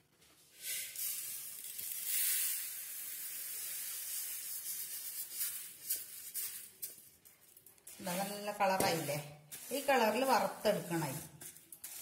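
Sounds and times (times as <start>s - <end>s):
rice grains pouring onto metal: 0.6s - 5.8s.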